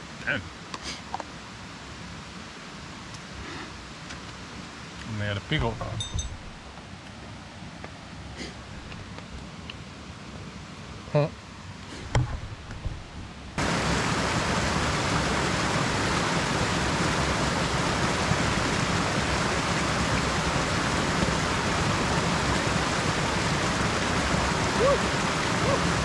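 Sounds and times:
water pouring over rocks: 13.6s - 26.0s.

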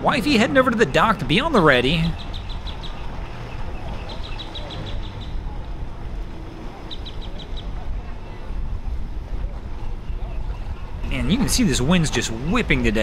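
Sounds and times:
outboard motors humming: 0.0s - 13.0s
wind rumbling on microphone: 0.0s - 13.0s
bird chirping: 0.8s - 5.5s, 6.8s - 7.8s.

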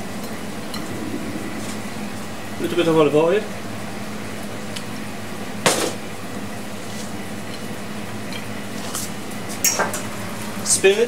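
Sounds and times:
kitchen ventilation hum: 5.0s - 11.0s.

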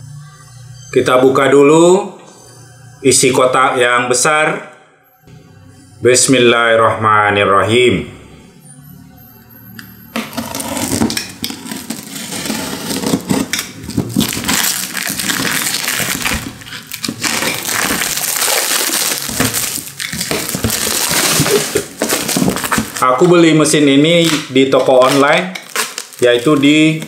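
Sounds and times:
cardboard box crackling and rustling: 11.6s - 23.0s.

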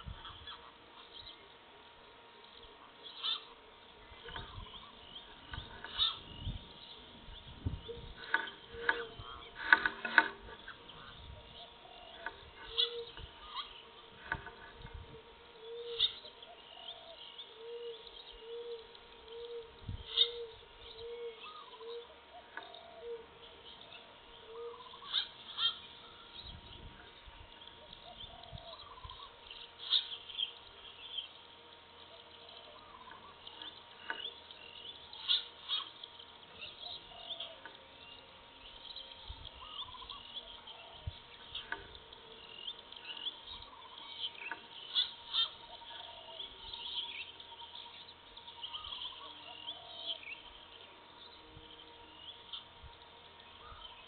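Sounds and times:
low hooting bird call: 2.6s - 31.4s, 32.0s - 54.0s
birds chirping and whistling: 3.0s - 54.0s.

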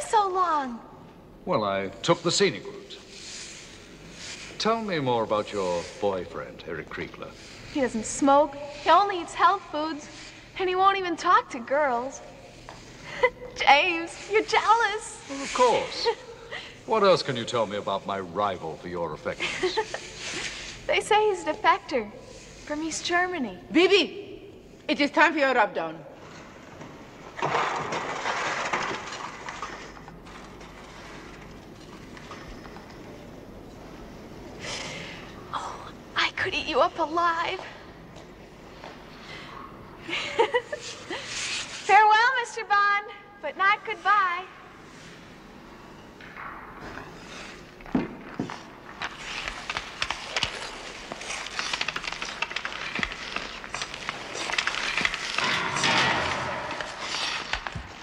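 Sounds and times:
skate blades scraping ice: 3.0s - 6.6s, 7.2s - 13.0s, 13.6s - 16.3s, 17.2s - 23.3s, 40.7s - 42.2s, 46.9s - 58.0s
hockey sticks clacking: 46.2s - 58.0s.

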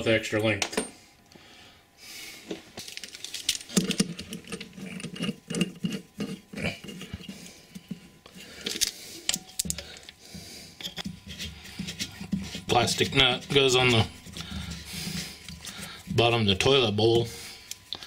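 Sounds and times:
metal nut clicking and rattling: 2.9s - 6.3s.

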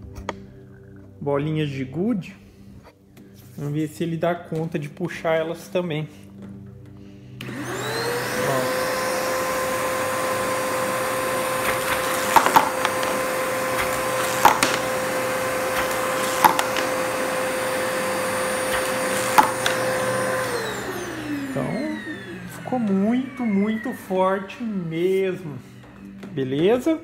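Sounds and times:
shop vacuum whining: 5.3s - 27.0s
marbles clacking through vacuum wand: 13.8s - 14.9s.

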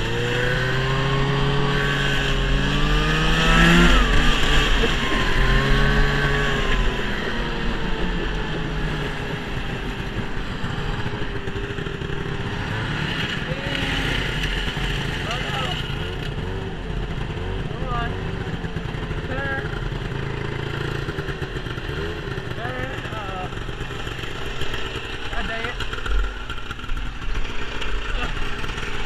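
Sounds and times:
snowmobile engine accelerating: 0.0s - 29.0s.

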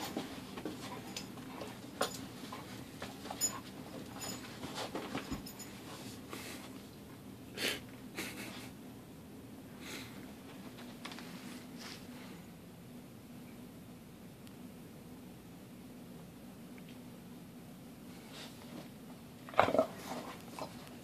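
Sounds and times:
small clicks and rustles: 10.5s - 11.5s.

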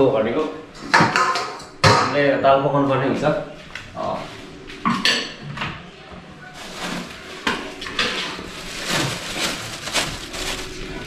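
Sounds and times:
plastic bag rustling: 6.5s - 11.0s.

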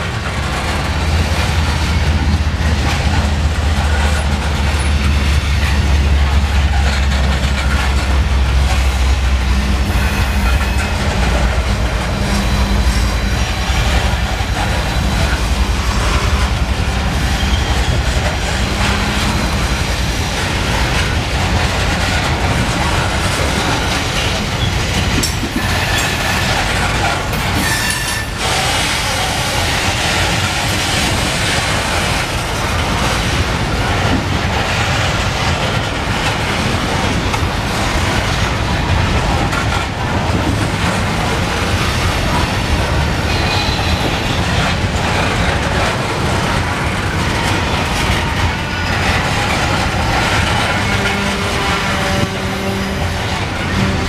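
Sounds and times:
train wheels rumbling and clacking: 0.0s - 54.0s
high wheel squeals: 17.3s - 18.0s, 27.6s - 29.4s, 43.3s - 44.4s.

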